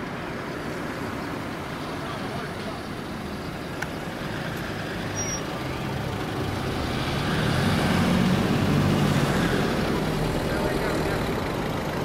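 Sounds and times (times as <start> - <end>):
car driving past: 4.2 - 11.3.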